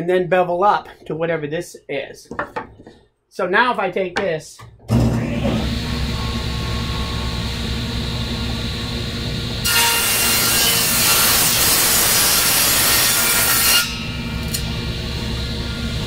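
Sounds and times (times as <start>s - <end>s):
table saw motor humming: 4.9s - 16.0s
saw blade cutting wood: 9.6s - 14.7s.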